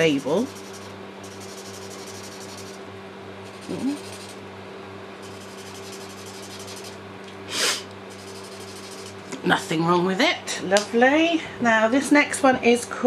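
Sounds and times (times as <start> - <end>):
marker scrubbing on paper: 0.0 - 2.8, 3.5 - 4.4, 5.2 - 7.0, 7.6 - 9.2
electric fan humming: 0.0 - 13.0
person humming: 3.6 - 4.0.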